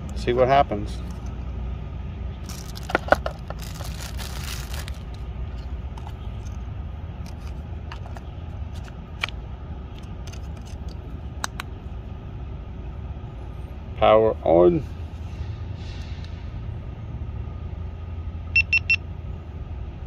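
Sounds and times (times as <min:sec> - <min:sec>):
low traffic rumble: 0:00.0 - 0:20.0
plastic rustle: 0:02.4 - 0:06.2.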